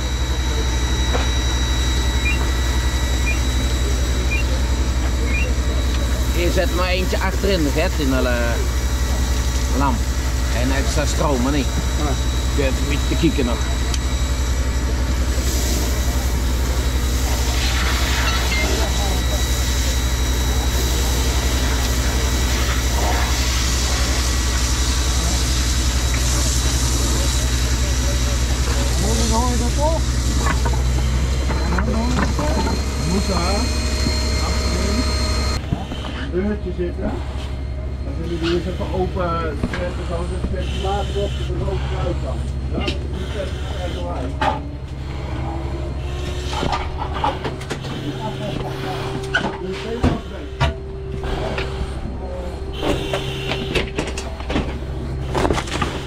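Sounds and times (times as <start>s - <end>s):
engine running with high whine: 0.0s - 56.0s
two-note electronic beep: 2.2s - 2.6s, 3.2s - 3.6s, 4.2s - 4.6s, 5.3s - 5.6s.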